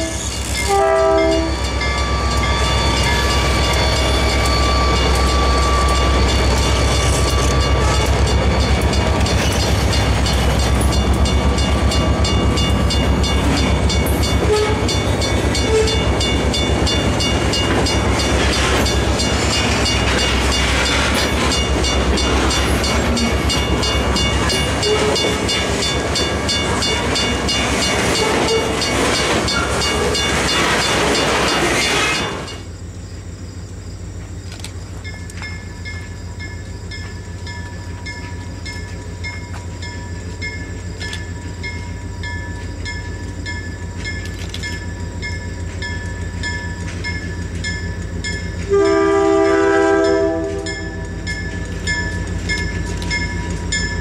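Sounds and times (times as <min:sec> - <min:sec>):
thin high squeal: 0:00.0 - 0:08.1
diesel train horn: 0:00.0 - 0:08.4, 0:14.4 - 0:16.1, 0:24.7 - 0:25.4, 0:48.6 - 0:51.0
train wheels clattering on rails: 0:00.0 - 0:32.8, 0:34.0 - 0:54.0
locomotive engine droning: 0:00.0 - 0:54.0.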